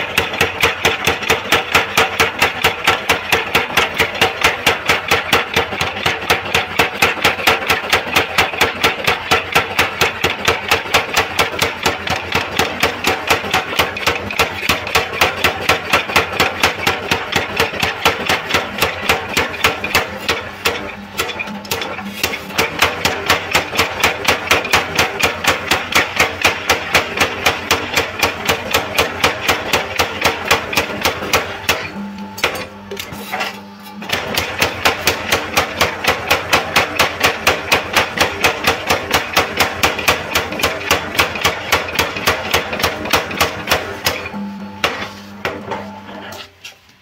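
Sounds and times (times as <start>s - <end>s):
power hammer blows on anvil: 13.8s - 45.8s.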